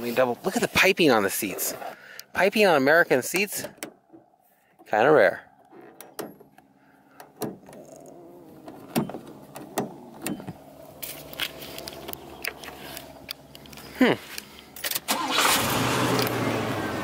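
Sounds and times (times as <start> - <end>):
clicks and knocks of car switches: 5.6 - 10.6.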